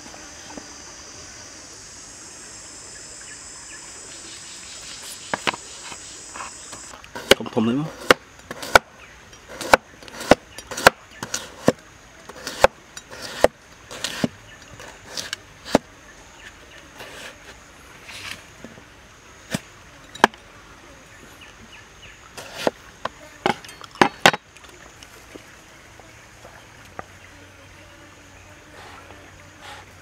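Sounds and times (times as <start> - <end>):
cleaver chopping on cutting board: 7.2 - 8.9, 9.6 - 11.8, 12.4 - 14.3.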